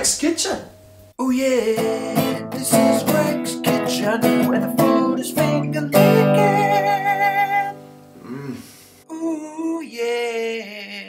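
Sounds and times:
person singing: 1.2 - 11.0
strummed acoustic guitar: 1.4 - 8.1.

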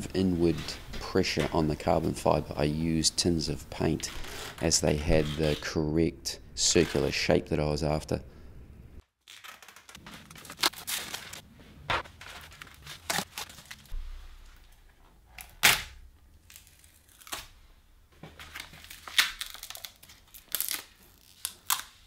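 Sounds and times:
tape ripping off roll: 15.4 - 17.6.

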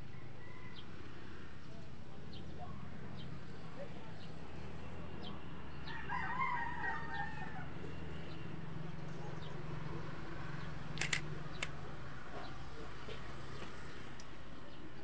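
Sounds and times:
rooster crowing: 5.8 - 7.8
sharp clicks: 11.0 - 11.8.

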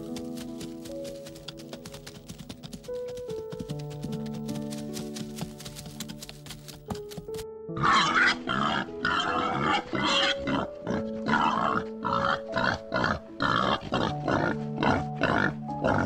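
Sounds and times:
soft background music: 0.0 - 16.0
pigs calling: 7.8 - 16.0.

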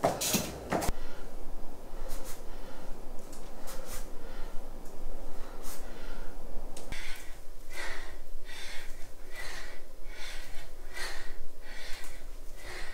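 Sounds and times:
woman breathing hard: 0.7 - 12.9.

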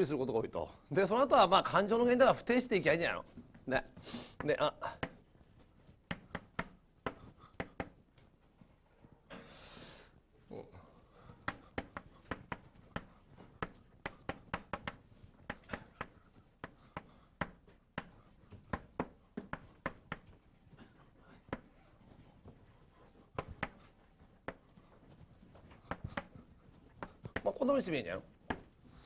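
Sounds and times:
chalk tapping on blackboard: 4.4 - 8.0, 11.3 - 29.0.

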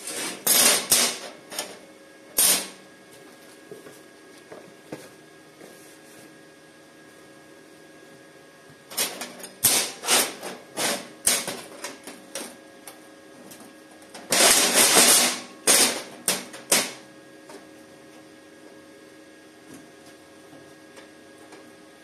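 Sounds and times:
welding arc sputtering: 0.0 - 1.5, 2.3 - 2.8.

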